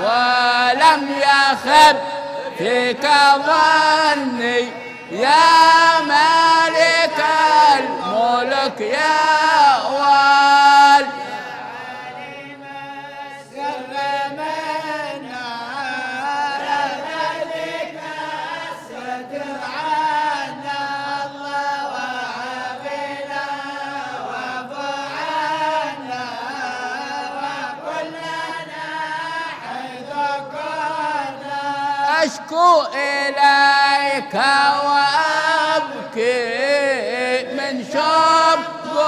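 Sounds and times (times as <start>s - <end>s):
men chanting together: 0.0s - 39.0s.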